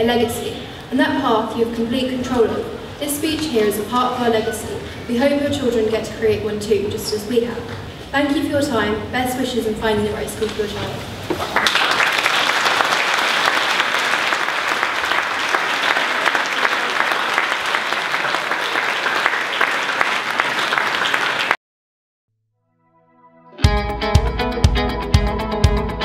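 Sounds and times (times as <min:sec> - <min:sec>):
audience applauding: 0:11.3 - 0:21.6.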